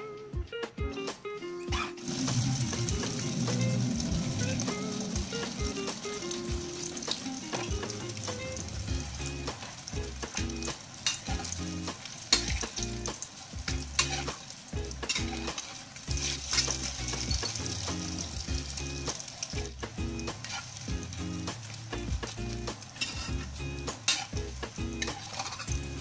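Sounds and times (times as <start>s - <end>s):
spatula scraping pan: 1.7s - 26.0s
oil sizzling in a wok: 2.0s - 26.0s.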